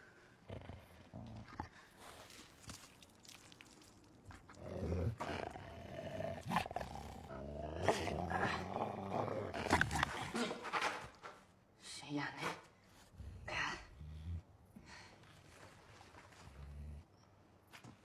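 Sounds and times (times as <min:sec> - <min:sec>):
wolf growling and snarling: 0:00.4 - 0:02.4, 0:04.3 - 0:10.9, 0:13.0 - 0:14.5.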